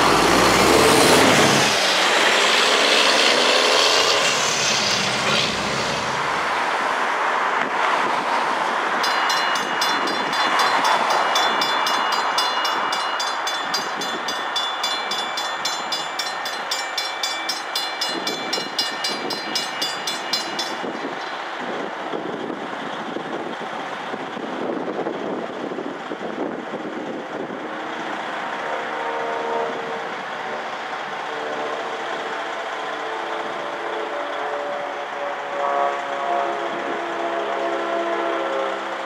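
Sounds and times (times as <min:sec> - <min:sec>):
grade crossing bells ringing: 0:08.9 - 0:23.1.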